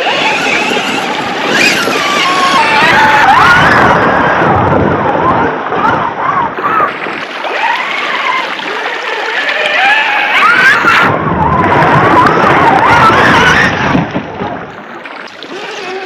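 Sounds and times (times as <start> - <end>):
toy truck electric motor whining: 0.0 - 2.7, 15.5 - 16.0
tyres splashing through water: 0.0 - 16.0.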